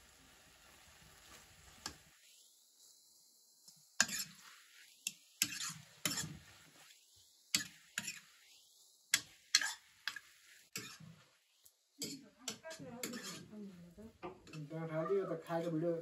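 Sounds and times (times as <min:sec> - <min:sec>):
spoon scraping a pot: 0:04.0 - 0:11.4, 0:12.0 - 0:16.0.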